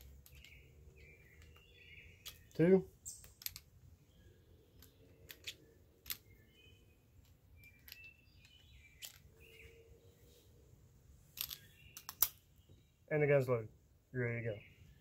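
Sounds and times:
faint bird chirps: 0.3 - 3.4, 4.0 - 10.7
cartridges clicking into revolver: 11.4 - 12.4.

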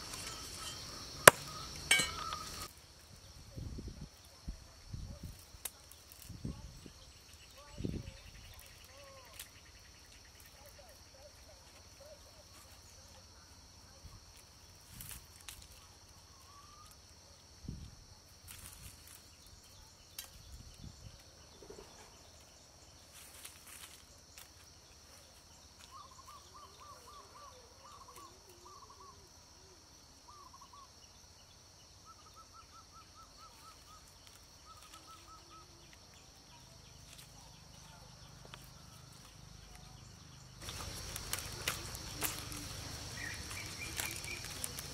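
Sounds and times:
bird trilling: 0.0 - 2.7
high-pitched insect drone: 0.0 - 2.7, 32.1 - 44.9.

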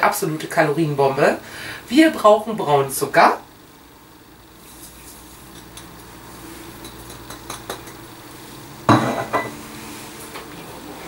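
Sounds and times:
low sizzle: 0.0 - 11.0
sugar pouring into a pan: 4.6 - 5.6
kitchenware clinking: 6.8 - 8.0, 8.9 - 9.6.

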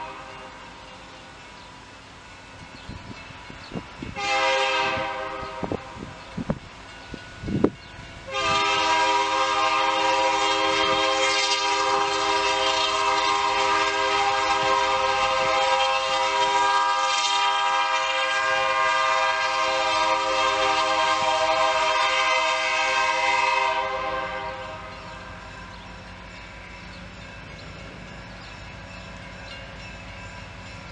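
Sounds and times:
steam locomotive whistle: 0.0 - 0.6, 4.1 - 6.2, 8.2 - 25.8.

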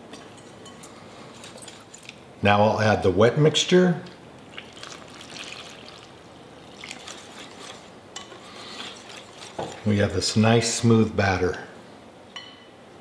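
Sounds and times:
batter stirring: 0.0 - 2.2, 4.4 - 10.5
liquid trickling: 1.2 - 2.2, 4.3 - 9.9.

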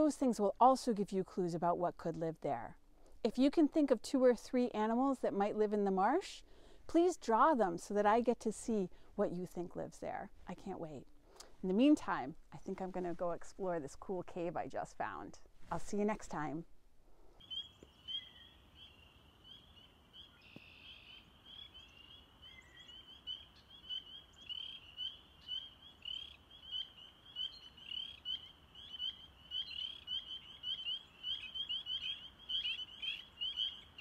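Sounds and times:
frogs peeping: 17.4 - 34.0.

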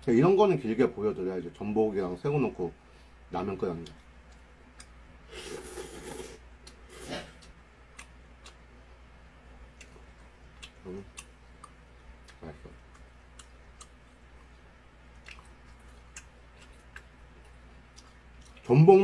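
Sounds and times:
faint low hum: 0.0 - 19.0
person chewing noodles: 4.3 - 8.6, 9.7 - 18.7
mouth smacks and clicks: 7.4 - 8.6, 9.7 - 14.0.

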